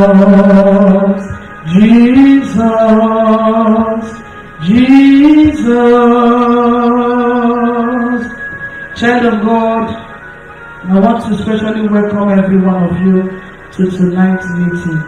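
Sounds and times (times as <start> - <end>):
woman singing chant-like notes: 0.0 - 8.4.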